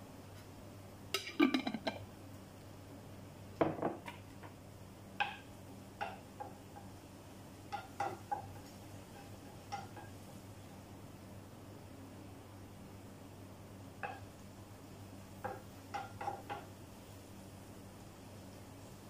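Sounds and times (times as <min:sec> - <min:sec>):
utensils and cookware clinking: 0:01.2 - 0:02.0, 0:07.7 - 0:10.2, 0:15.4 - 0:16.7
wooden spatula tapping in frying pan: 0:05.2 - 0:07.0, 0:07.6 - 0:10.3, 0:13.9 - 0:14.4, 0:15.4 - 0:16.8.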